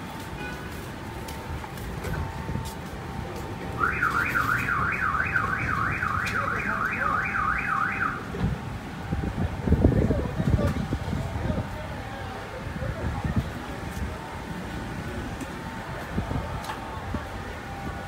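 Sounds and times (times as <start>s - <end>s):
low street noise: 0.0s - 18.0s
car alarm siren: 3.8s - 8.4s.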